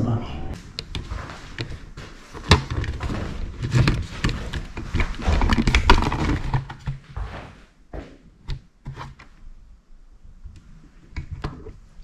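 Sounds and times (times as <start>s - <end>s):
knocks thumps and rustles of gear: 2.4s - 7.2s.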